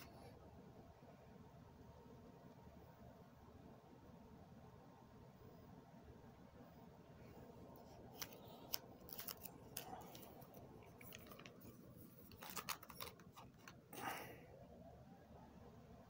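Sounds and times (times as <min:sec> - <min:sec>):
plastic sheet rustle: 0:07.8 - 0:13.8
plastic binder sheet crinkling: 0:07.8 - 0:14.2.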